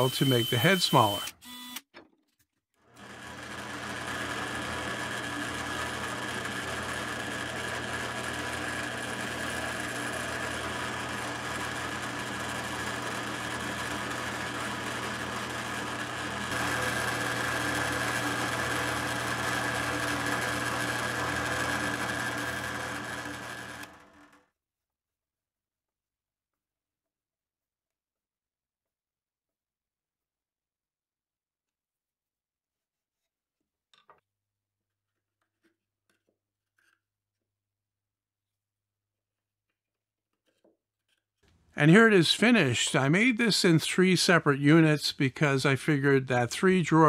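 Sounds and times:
cordless drill motor running: 0.0s - 1.8s, 3.0s - 24.4s.

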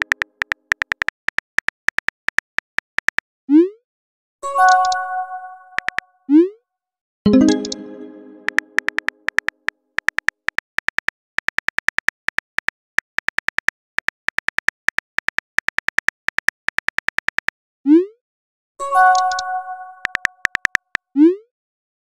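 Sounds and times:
phone keyboard typing clicks: 0.0s - 3.2s, 5.8s - 6.0s, 7.4s - 17.5s, 19.1s - 21.0s
multi-tone chime: 7.3s - 8.8s.

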